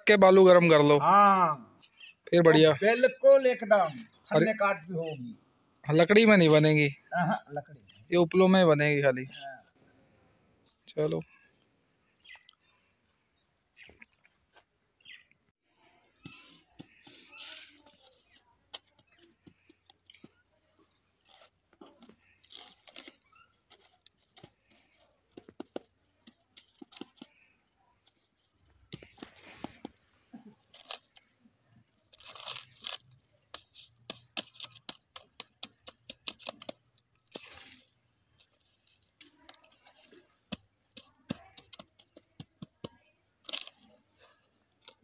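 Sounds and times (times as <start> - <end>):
dry leaves crackling and crunching: 22.4 - 24.5, 32.0 - 35.5, 43.4 - 44.0.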